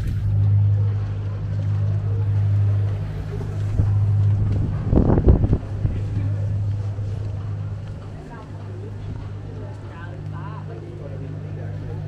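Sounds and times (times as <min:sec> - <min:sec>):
ferry engines humming: 0:00.0 - 0:12.0.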